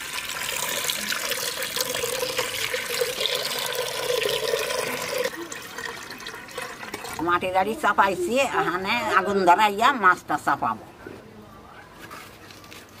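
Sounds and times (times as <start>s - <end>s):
water pouring into clay pot: 0.0s - 8.2s.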